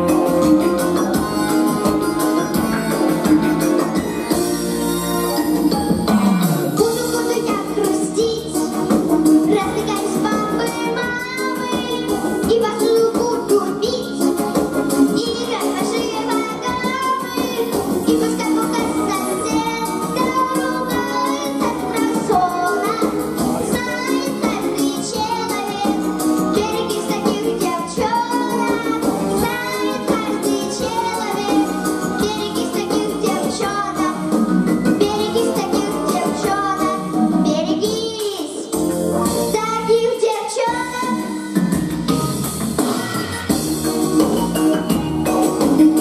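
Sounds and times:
backing track with steady beat: 0.0s - 46.0s
girl singing into a microphone: 6.7s - 8.8s, 9.4s - 14.3s, 15.0s - 41.6s.

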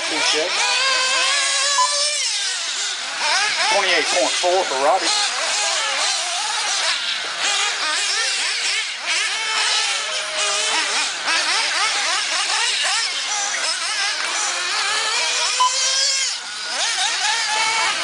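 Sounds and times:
rc buggy engines revving: 0.0s - 18.0s.

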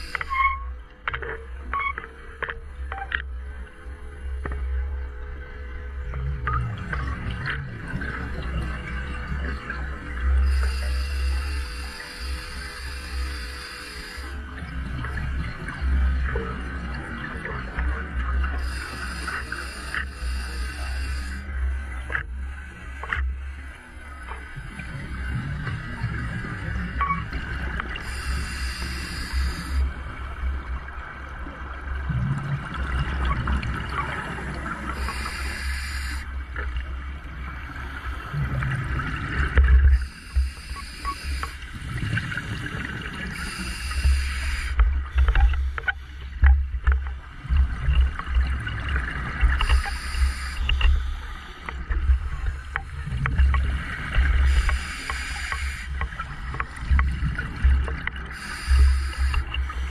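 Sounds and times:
hiss and bubbles: 0.0s - 0.7s, 6.4s - 59.9s
low rumble of water: 0.0s - 59.9s
scuba diver breathing through regulator: 10.5s - 14.4s, 18.6s - 21.5s, 28.0s - 29.9s, 35.0s - 36.3s, 40.0s - 41.8s, 43.3s - 46.4s, 49.6s - 53.2s, 54.4s - 56.8s, 58.3s - 59.9s.

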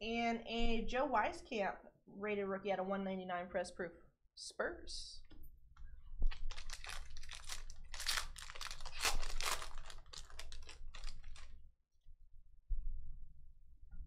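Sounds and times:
foil wrapper tearing and crinkling: 6.3s - 11.6s.

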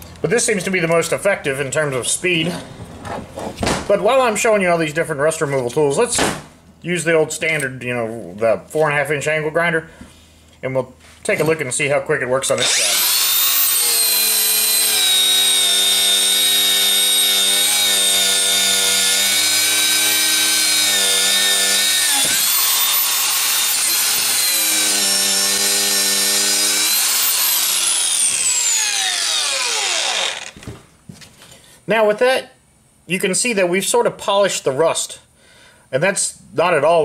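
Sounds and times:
angle grinder wire wheel whine: 12.6s - 30.6s.

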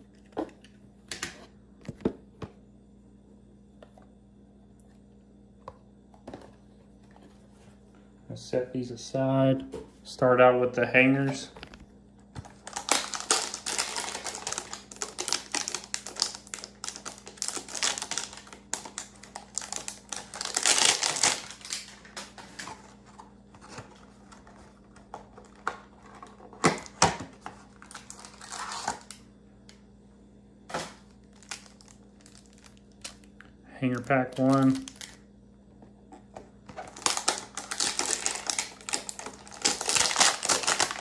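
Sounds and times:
plastic wrappers crinkling: 12.4s - 29.2s, 30.7s - 35.2s, 36.6s - 41.0s.

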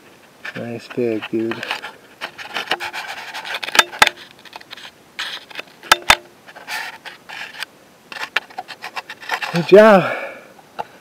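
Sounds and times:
rustling and scraping: 0.0s - 10.0s.

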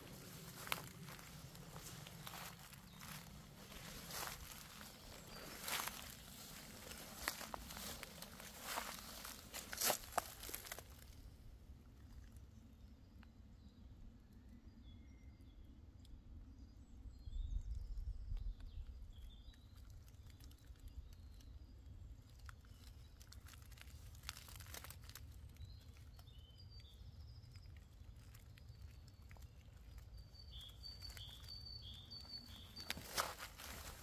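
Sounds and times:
footsteps crunching on dry leaves: 0.0s - 11.0s, 23.5s - 25.2s, 30.6s - 34.0s
small birds chirping: 0.0s - 11.2s, 17.3s - 34.0s.

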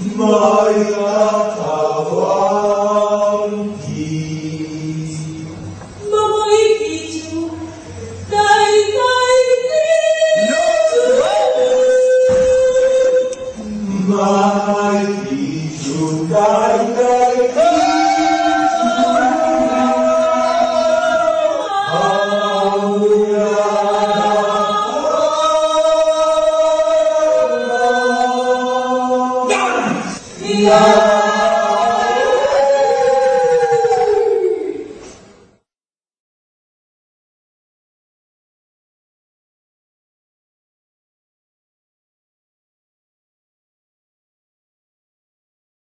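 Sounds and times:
group of voices singing: 0.0s - 35.3s.

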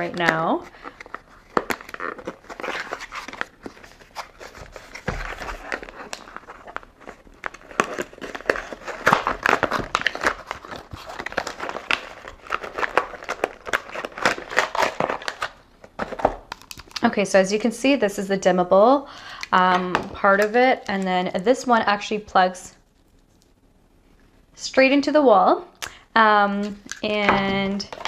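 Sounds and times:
cardboard box being unpacked: 0.2s - 16.9s.

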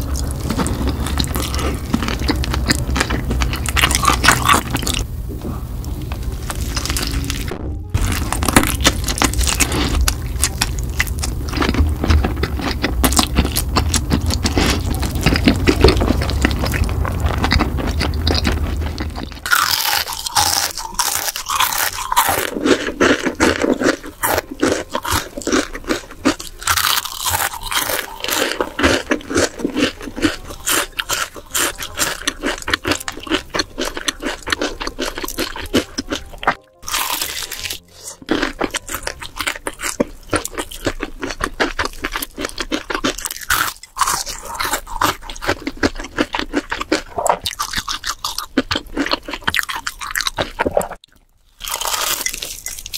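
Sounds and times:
crunching fried chicken: 0.0s - 5.1s, 6.0s - 52.9s
low hum: 0.0s - 21.0s.

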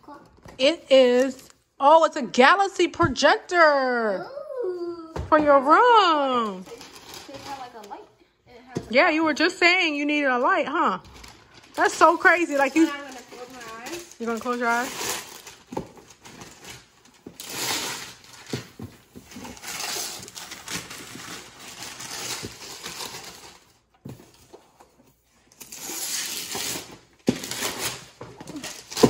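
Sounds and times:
wrapping paper tearing: 6.6s - 8.0s, 11.1s - 18.6s, 19.4s - 23.8s, 25.5s - 29.0s.

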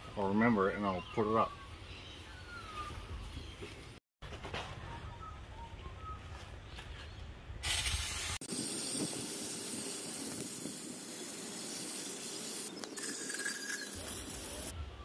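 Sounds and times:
aerosol can spraying hiss: 7.6s - 14.7s.

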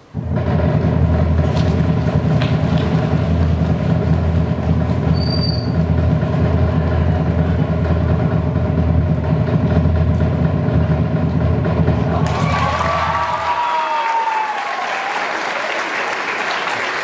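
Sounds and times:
drumroll-like rumble: 0.0s - 14.4s
crowd cheering and applause: 1.4s - 5.2s, 11.9s - 17.0s
short whistle: 5.1s - 5.8s.

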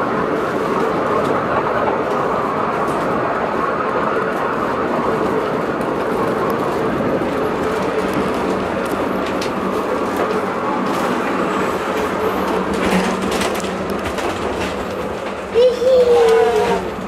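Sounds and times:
funicular car rumble and hum: 0.0s - 17.0s
wheels clicking on track: 0.0s - 17.0s.

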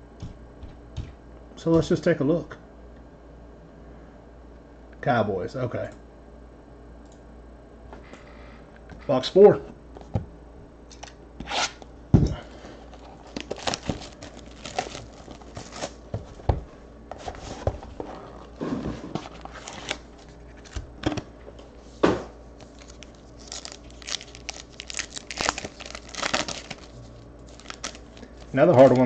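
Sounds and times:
foil packs tearing and crinkling: 12.9s - 16.0s, 18.4s - 20.6s, 22.6s - 29.0s.

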